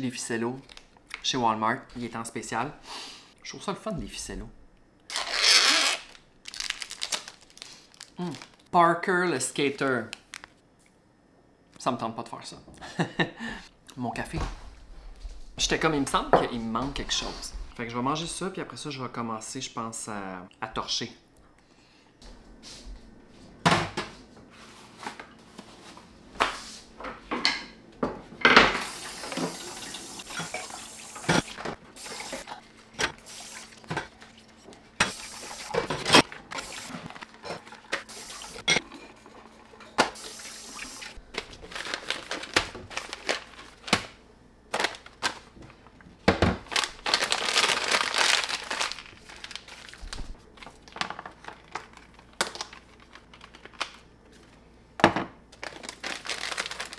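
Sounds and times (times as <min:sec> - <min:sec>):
tap water running: 0:28.7 - 0:41.2.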